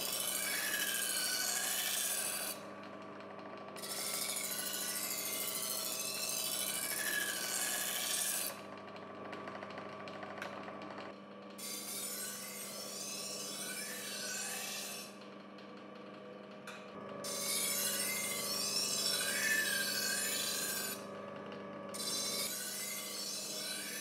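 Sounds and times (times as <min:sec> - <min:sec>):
knife grinding on abrasive wheel: 0:00.0 - 0:02.6, 0:03.8 - 0:08.6, 0:11.6 - 0:15.2, 0:17.1 - 0:21.2, 0:21.9 - 0:24.0.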